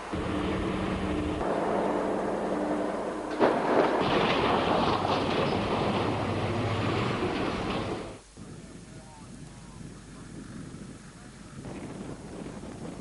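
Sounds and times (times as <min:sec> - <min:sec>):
truck diesel engine under load: 0:00.0 - 0:08.2
truck crushing vehicle: 0:00.2 - 0:08.2
sharp crack: 0:01.4 - 0:08.2.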